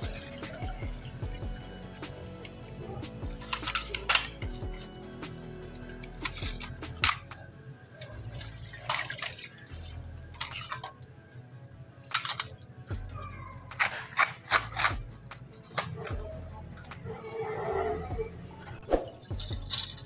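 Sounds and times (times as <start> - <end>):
utensils clinking and knocking: 0.0 - 7.5, 8.6 - 11.1, 12.0 - 17.1, 18.8 - 20.0
faint background music: 0.0 - 20.0
liquid splashing: 8.0 - 11.2.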